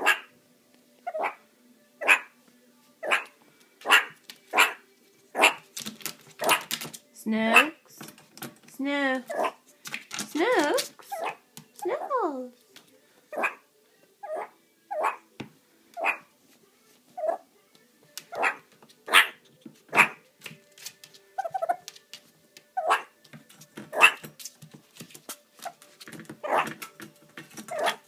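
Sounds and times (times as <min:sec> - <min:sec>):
meerkat warning barks: 0:00.0 - 0:00.3, 0:01.0 - 0:01.4, 0:02.0 - 0:02.4, 0:03.0 - 0:05.6, 0:06.4 - 0:06.8, 0:07.5 - 0:07.9, 0:09.2 - 0:09.6, 0:10.7 - 0:11.4, 0:13.3 - 0:13.6, 0:14.2 - 0:15.3, 0:16.0 - 0:16.3, 0:17.2 - 0:17.5, 0:18.3 - 0:20.2, 0:22.7 - 0:23.2, 0:23.9 - 0:24.3, 0:26.4 - 0:26.8, 0:27.7 - 0:28.0.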